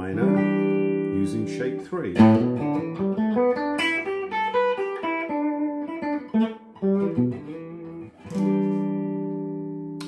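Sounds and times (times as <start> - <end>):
electric guitar picking single notes: 0.0 - 10.0.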